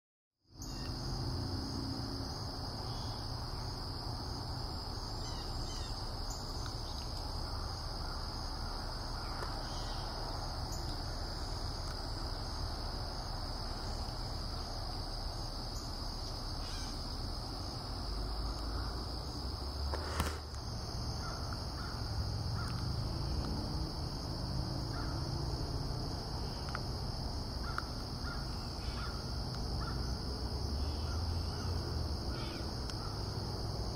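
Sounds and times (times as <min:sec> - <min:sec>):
high-pitched insect drone: 0:00.5 - 0:33.9
bird calls: 0:05.2 - 0:07.2, 0:09.2 - 0:10.1.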